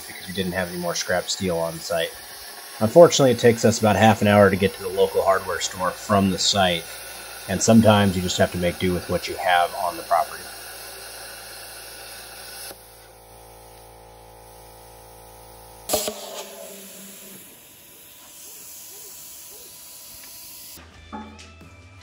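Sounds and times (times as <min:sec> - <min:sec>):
buzzing hum: 0:00.0 - 0:20.8
plasma cutter hissing: 0:00.0 - 0:20.8
sharp metal clack: 0:15.9 - 0:16.8.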